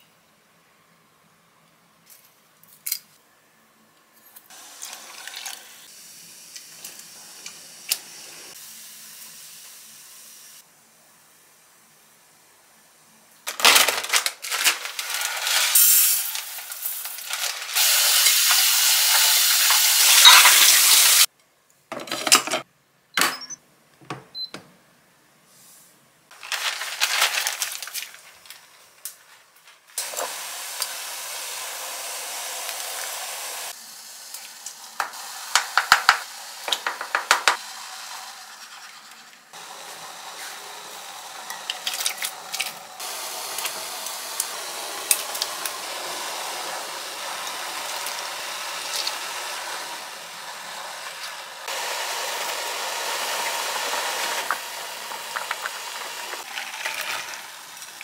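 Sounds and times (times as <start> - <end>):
plastic bag crinkling: 13.5 - 17.8, 26.3 - 29.4
rice pouring into pot: 13.7 - 21.3, 26.4 - 28.2, 39.6 - 58.0
steady hiss: 15.0 - 21.3.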